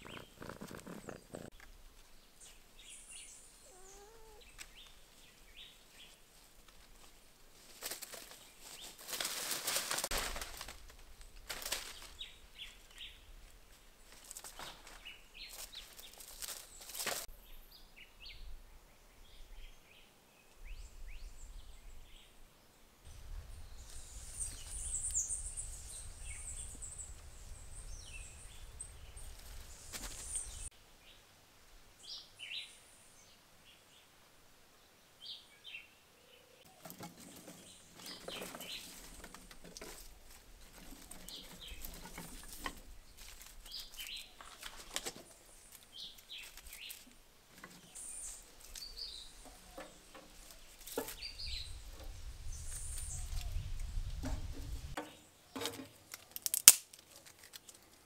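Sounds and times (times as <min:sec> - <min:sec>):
birds chirping: 0:00.0 - 0:06.2, 0:23.4 - 0:30.7, 0:35.2 - 0:55.6.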